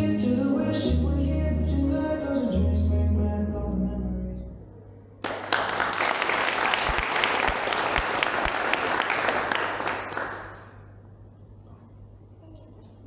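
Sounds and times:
music: 0.0 - 4.6
audience applauding: 5.2 - 10.8.

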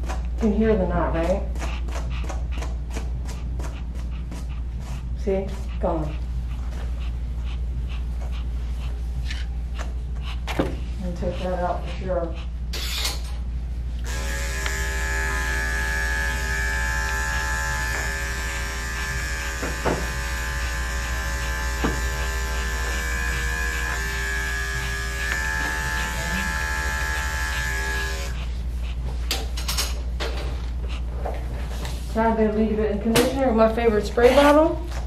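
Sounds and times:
electric clipper running: 14.0 - 28.4.

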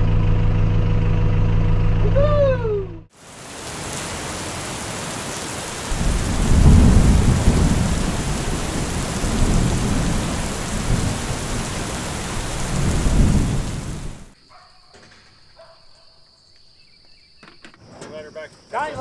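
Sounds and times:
steady rain hiss: 3.1 - 14.4
rolling thunder: 5.8 - 14.4.

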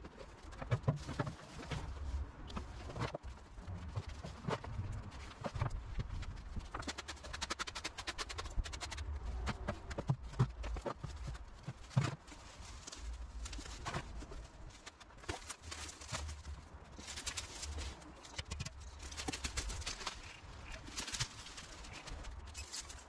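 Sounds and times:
rustling leafy foliage: 0.0 - 23.0.

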